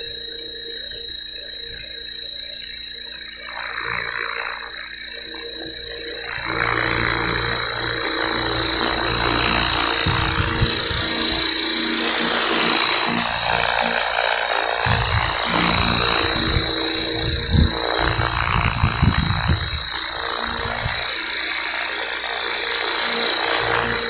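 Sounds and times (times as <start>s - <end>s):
helicopter rotor noise: 0.0s - 24.0s
motor and gear whine: 0.0s - 24.0s
wind buffeting microphone: 9.2s - 12.5s, 14.8s - 21.0s.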